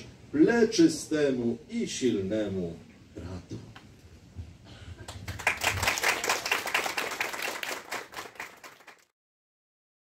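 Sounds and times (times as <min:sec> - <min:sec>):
people clapping: 0:05.0 - 0:09.1.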